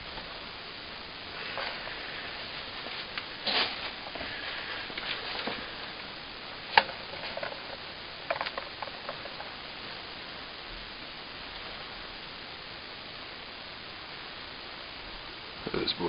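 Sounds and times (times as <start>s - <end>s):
rustling in wood shavings: 1.4s - 5.9s.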